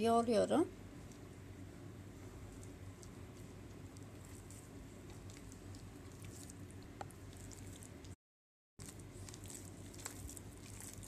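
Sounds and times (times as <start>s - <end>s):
steady low hum: 0.0s - 8.2s
hand kneading dough: 0.8s - 8.2s, 8.8s - 11.0s.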